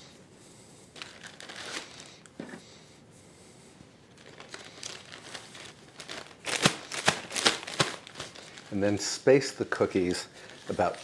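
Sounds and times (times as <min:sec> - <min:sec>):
plastic bag crinkling: 0:01.0 - 0:02.3, 0:04.1 - 0:09.1, 0:09.7 - 0:11.0.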